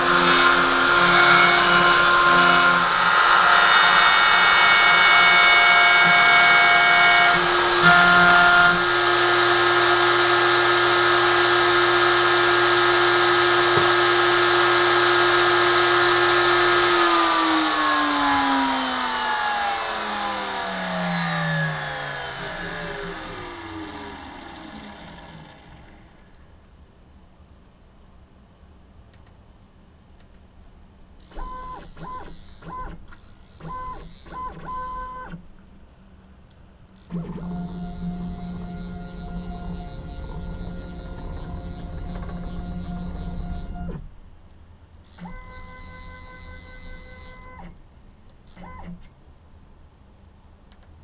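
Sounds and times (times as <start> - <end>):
router motor whining: 0.0 - 26.4, 31.2 - 35.5, 36.9 - 44.1, 45.0 - 47.8
stepper motors humming: 0.0 - 26.4, 31.2 - 35.5, 36.9 - 44.1, 45.1 - 47.8.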